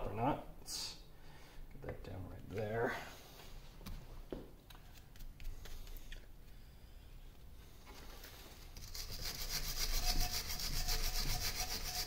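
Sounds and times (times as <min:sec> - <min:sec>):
rubbing on cast iron: 0:08.8 - 0:12.0.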